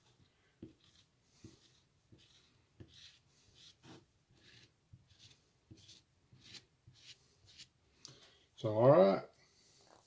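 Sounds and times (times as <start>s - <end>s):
squeegee scraping paste: 0.0s - 7.8s.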